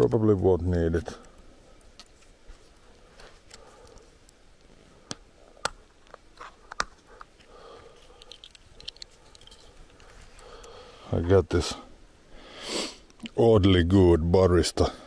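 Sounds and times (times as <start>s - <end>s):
soft rustle: 0.8s - 11.8s.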